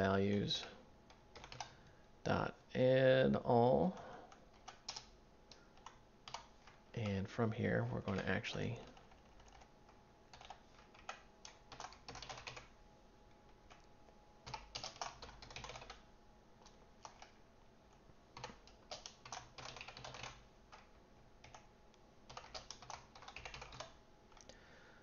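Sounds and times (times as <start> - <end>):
typing on computer keyboard: 0.6 - 1.8, 3.9 - 6.8, 8.1 - 9.7, 10.3 - 12.7, 13.7 - 16.0, 16.6 - 17.4, 18.4 - 21.7, 22.3 - 24.5.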